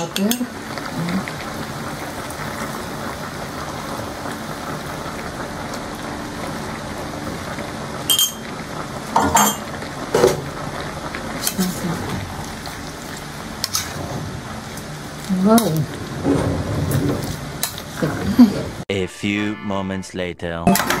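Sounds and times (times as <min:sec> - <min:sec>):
wok cooking hiss: 0:00.0 - 0:18.8
utensil clinking against wok: 0:09.2 - 0:09.7.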